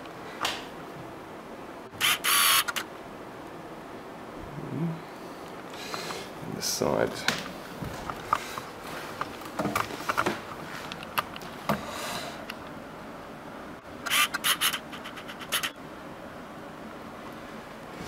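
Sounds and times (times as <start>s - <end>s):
scratching and scraping: 14.1s - 15.8s.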